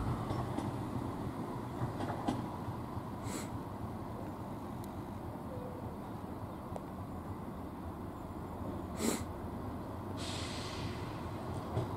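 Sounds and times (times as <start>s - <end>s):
diesel trains rumbling: 0.0s - 11.9s
short hiss: 10.2s - 11.2s.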